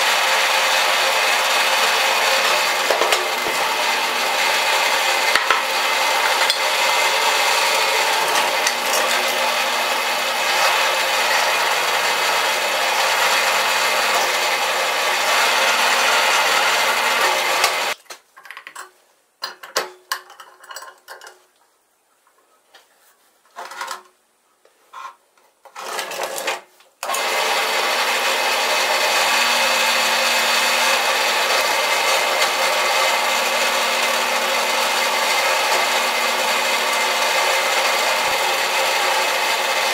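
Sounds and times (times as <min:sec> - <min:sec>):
drill press motor running: 0:00.0 - 0:18.0, 0:27.0 - 0:39.9.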